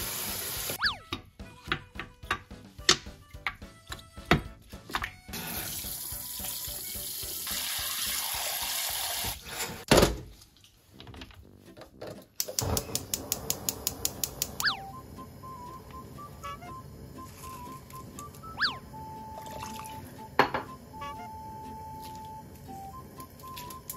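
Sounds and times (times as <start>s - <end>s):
tap water running into a pot: 0.0s - 0.8s, 5.3s - 9.5s, 19.3s - 20.8s
fast run of clicks: 12.4s - 14.7s.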